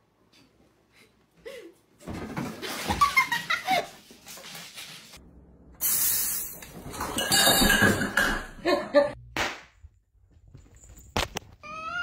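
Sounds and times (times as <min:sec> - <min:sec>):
person laughing and giggling: 0:02.6 - 0:04.1, 0:08.6 - 0:09.2.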